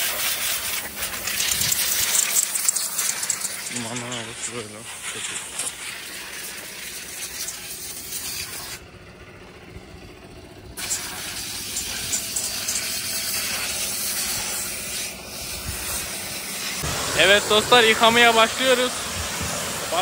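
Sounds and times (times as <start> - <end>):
water spraying hiss: 0.0 - 8.8, 10.8 - 20.0.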